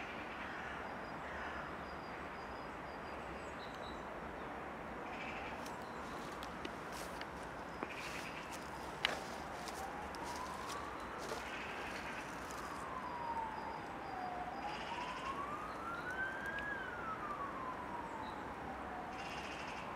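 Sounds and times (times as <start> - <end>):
emergency siren wailing: 5.1 - 19.9.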